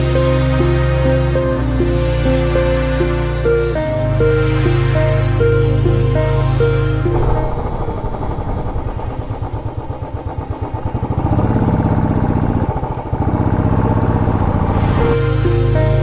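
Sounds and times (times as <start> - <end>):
music: 0.0 - 16.0
motorcycle engine running: 6.6 - 16.0.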